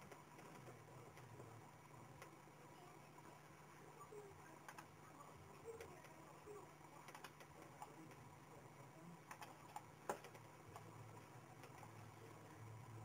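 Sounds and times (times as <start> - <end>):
low steady hum: 0.0 - 13.0
computer mouse clicks: 4.6 - 4.9, 7.0 - 8.2, 9.2 - 12.0.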